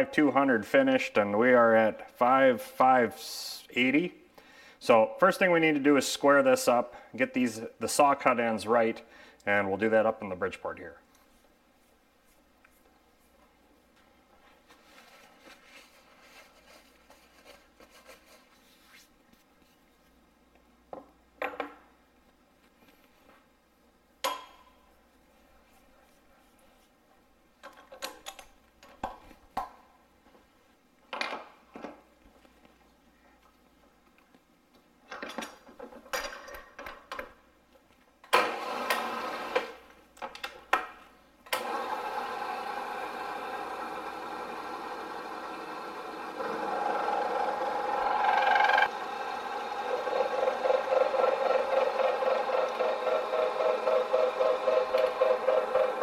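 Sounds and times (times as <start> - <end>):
milling machine cutting metal: 41.6 - 56.0.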